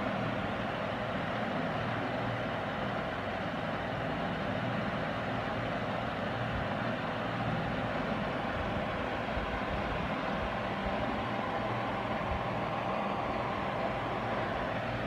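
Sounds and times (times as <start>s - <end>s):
electric pump humming: 0.0s - 15.0s.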